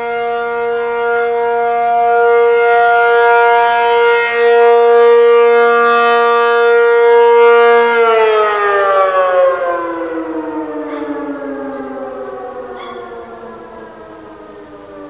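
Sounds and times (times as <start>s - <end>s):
rotating siren winding down: 0.0s - 15.0s.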